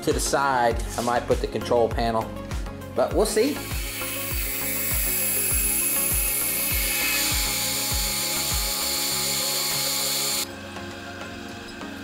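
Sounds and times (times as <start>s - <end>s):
background music with thumping beat: 0.0s - 12.0s
band saw cutting steel: 3.3s - 10.5s.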